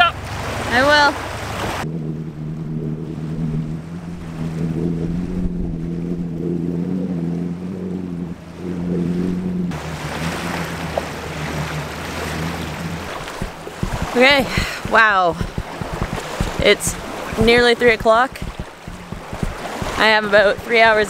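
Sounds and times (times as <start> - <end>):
waves washing on beach: 0.0 - 1.9, 9.7 - 21.0
muffled motorboat engine: 0.0 - 21.0.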